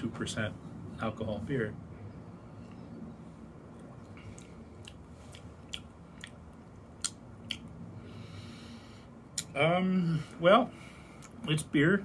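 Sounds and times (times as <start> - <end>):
wet mouth clicks and lip smacks: 3.7 - 7.8.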